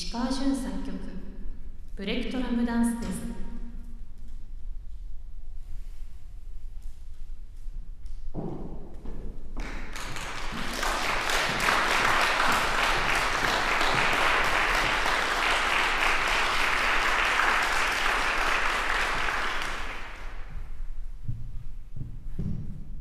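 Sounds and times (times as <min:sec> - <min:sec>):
audience applauding: 0:09.6 - 0:20.5.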